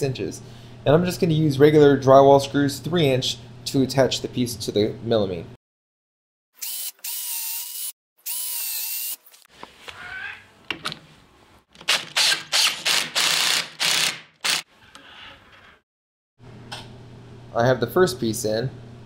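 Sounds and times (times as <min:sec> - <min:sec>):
cordless drill whining: 0:06.6 - 0:09.2, 0:11.9 - 0:14.7
drill driving screws in bursts: 0:06.6 - 0:09.2, 0:11.9 - 0:14.7.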